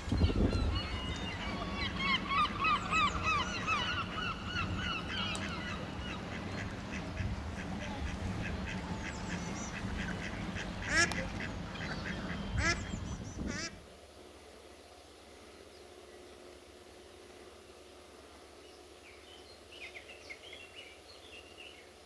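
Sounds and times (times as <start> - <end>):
waterfowl honking: 0.7 - 13.8.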